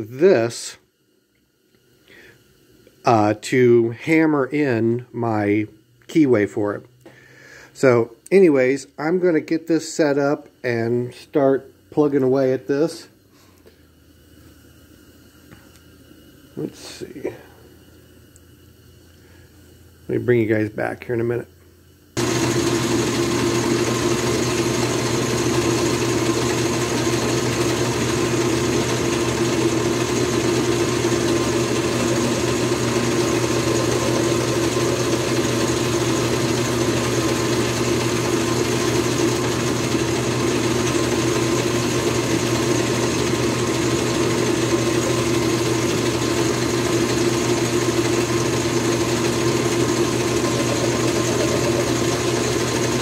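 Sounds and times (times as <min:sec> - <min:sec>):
metal lathe running: 0:22.2 - 0:53.0.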